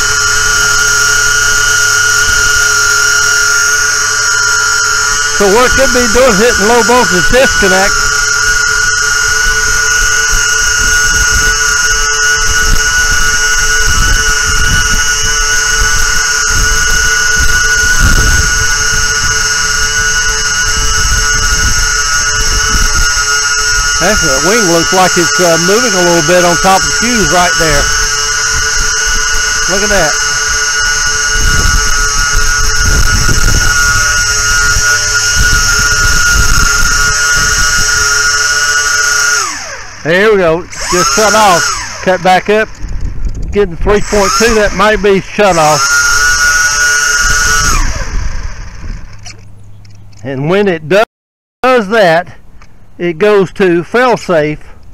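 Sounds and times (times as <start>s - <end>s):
model plane motors whining: 0.0s - 50.7s
wind rumble on microphone: 7.8s - 24.4s, 26.8s - 38.3s, 41.7s - 45.2s, 45.8s - 49.8s.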